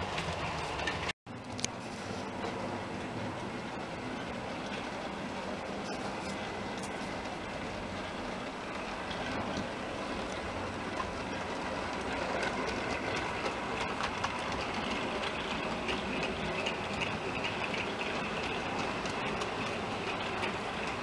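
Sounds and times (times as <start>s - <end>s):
model trains whirring: 0.0s - 21.0s
clicks over rail joints: 8.8s - 21.0s.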